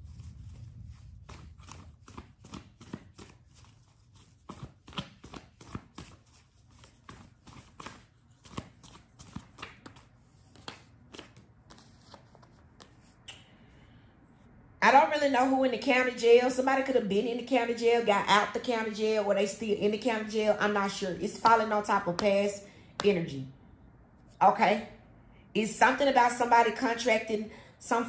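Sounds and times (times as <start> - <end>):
cards being shuffled: 0.1 - 13.3.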